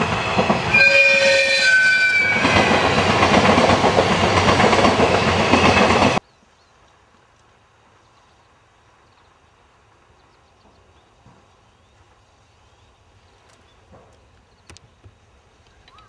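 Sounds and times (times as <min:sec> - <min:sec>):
faint bird chirps: 0:15.6 - 0:16.0.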